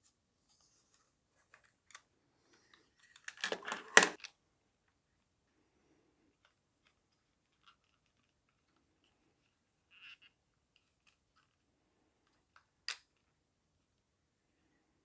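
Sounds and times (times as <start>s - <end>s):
plastic parts clicking and rattling: 1.4s - 4.4s, 6.3s - 11.6s.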